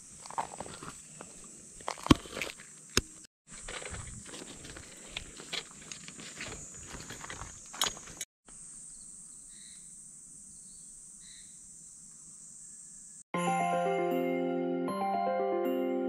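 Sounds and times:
tent pole rustling and clicking: 0:01.8 - 0:08.3.

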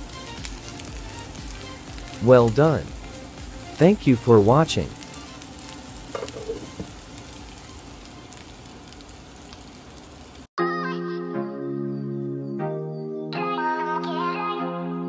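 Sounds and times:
music: 0:00.0 - 0:08.4, 0:10.6 - 0:15.0
chicken sizzling in oil: 0:00.0 - 0:10.5.

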